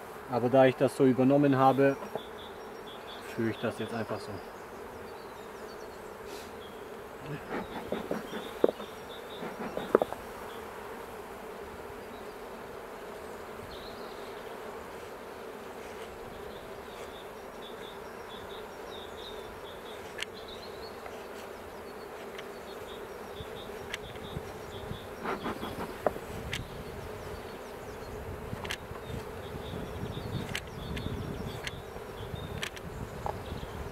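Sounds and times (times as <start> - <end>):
honeybees buzzing: 0.0 - 33.9
sharp knocks: 7.5 - 10.2.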